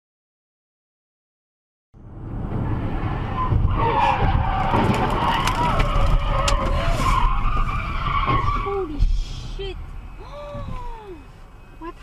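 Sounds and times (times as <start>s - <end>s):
road noise: 2.0s - 12.0s
car tires squealing: 2.7s - 9.0s.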